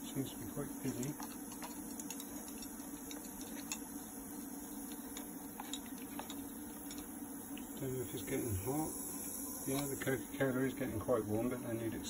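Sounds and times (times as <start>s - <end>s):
steady electrical hum: 0.0s - 12.0s.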